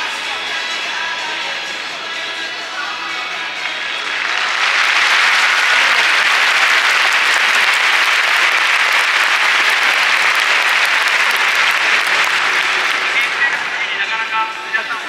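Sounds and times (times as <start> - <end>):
stadium crowd applause: 3.6 - 15.0.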